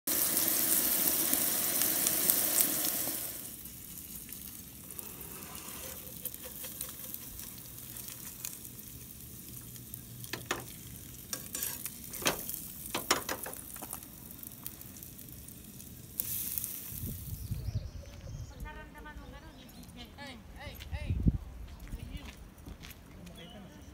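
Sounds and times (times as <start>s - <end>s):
meat and eggs sizzling: 0.0s - 17.9s
spatula scraping pan: 5.0s - 7.5s, 11.3s - 12.4s.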